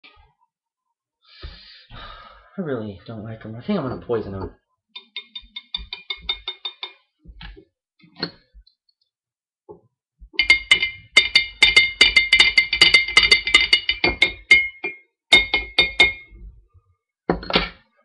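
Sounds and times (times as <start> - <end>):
spoon clinking in a glass: 5.0 - 7.0, 10.4 - 16.3.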